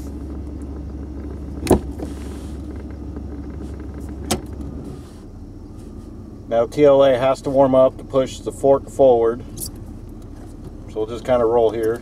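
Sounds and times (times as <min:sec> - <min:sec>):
pickup engine low rumble: 0:00.0 - 0:12.0
shift lever clunks: 0:01.6 - 0:02.0, 0:03.5 - 0:04.6.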